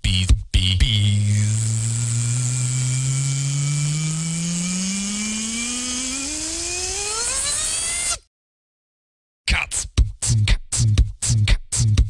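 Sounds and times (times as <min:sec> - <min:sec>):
buzzing synthesizer riser: 0:00.9 - 0:08.2.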